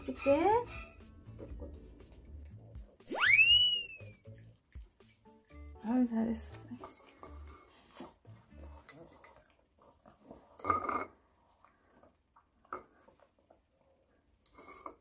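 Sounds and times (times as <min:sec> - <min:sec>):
dog licking and smacking lips: 0:04.2 - 0:05.6.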